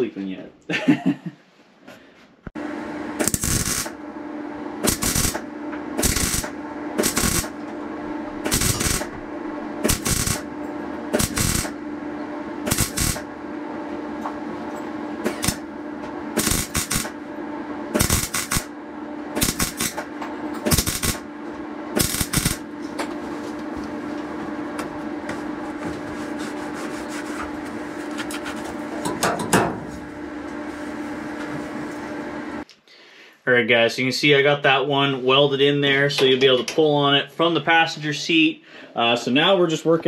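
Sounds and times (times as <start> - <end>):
steady hum: 0.0 - 36.0
welding arc crackling: 3.2 - 4.0, 4.8 - 7.6, 8.3 - 9.2, 9.8 - 10.5, 11.1 - 11.8, 12.6 - 13.3, 15.3 - 15.7, 16.3 - 17.2, 17.9 - 18.8, 19.4 - 21.3, 22.0 - 22.7.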